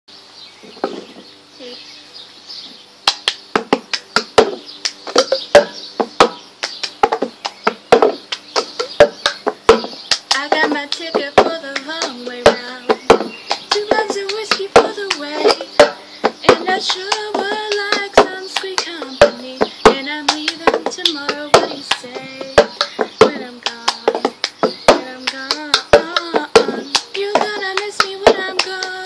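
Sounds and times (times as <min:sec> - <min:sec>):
hands clapping: 0:03.1 - 0:05.0, 0:06.6 - 0:07.6, 0:08.2 - 0:08.7.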